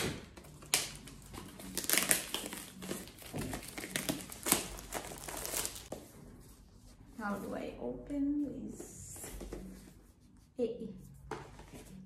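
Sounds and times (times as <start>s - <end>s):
packaging rustling and crinkling: 0.4s - 5.9s.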